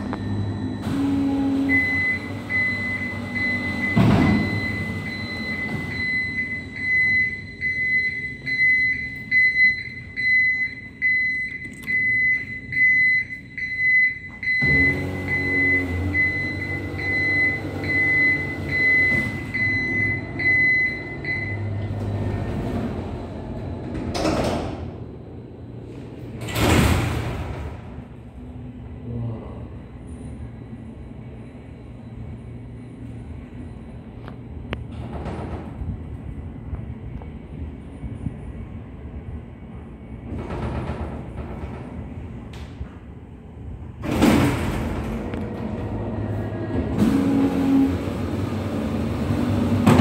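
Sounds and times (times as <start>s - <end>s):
elevator warning beeper: 0.0s - 22.9s
elevator machinery hum: 0.0s - 50.0s.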